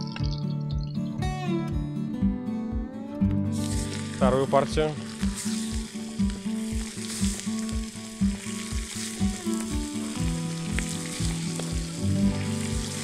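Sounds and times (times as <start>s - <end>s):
background music with steady beat: 0.0s - 13.0s
chicken sizzling in hot oil: 3.5s - 13.0s.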